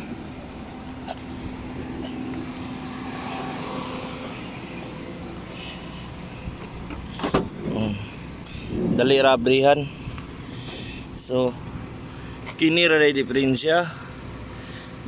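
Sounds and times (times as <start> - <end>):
vehicle hum: 0.0 - 15.0.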